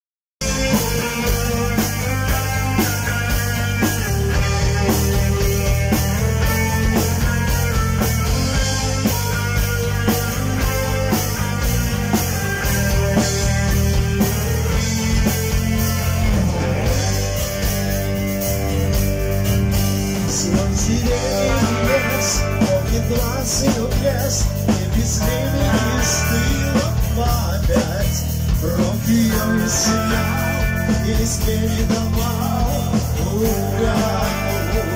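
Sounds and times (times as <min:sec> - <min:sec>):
bass guitar: 0:00.4 - 0:34.9
drum kit: 0:00.4 - 0:34.9
electric guitar: 0:00.4 - 0:34.9
man singing into a microphone: 0:20.2 - 0:34.9.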